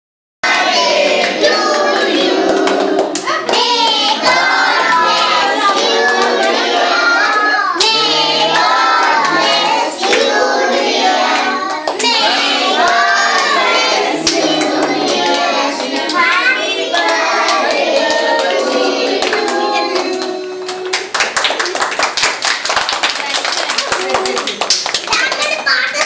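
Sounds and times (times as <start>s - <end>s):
children singing: 0.4s - 21.1s
hands clapping: 0.5s - 26.0s.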